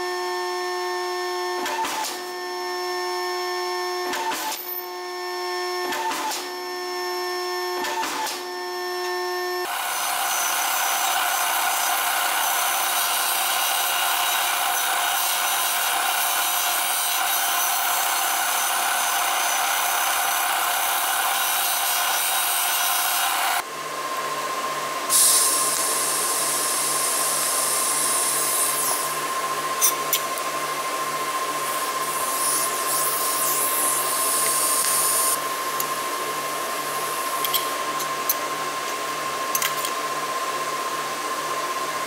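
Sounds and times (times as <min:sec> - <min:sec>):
machine hum with high hiss: 0:08.5 - 0:42.0
disc sander grinding metal: 0:09.7 - 0:23.6.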